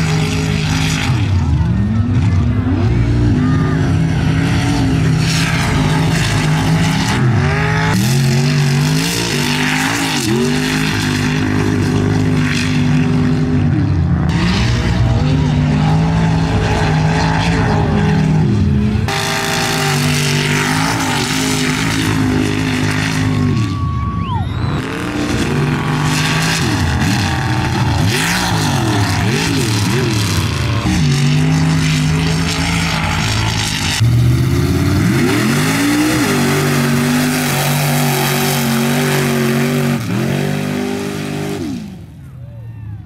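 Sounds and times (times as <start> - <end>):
truck engine revving at full throttle: 0.0 - 43.0.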